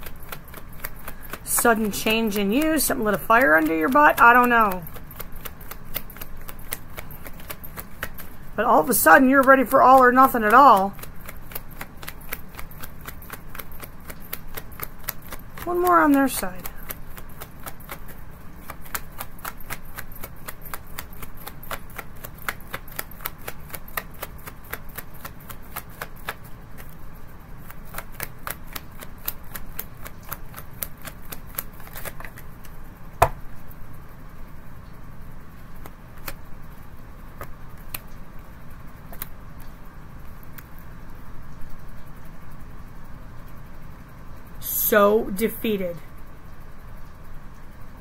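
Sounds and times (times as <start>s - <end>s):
cards being shuffled: 0.0s - 27.0s, 27.6s - 33.4s, 35.6s - 36.5s, 37.4s - 38.2s, 39.1s - 39.7s
sharp knock: 33.2s - 33.4s.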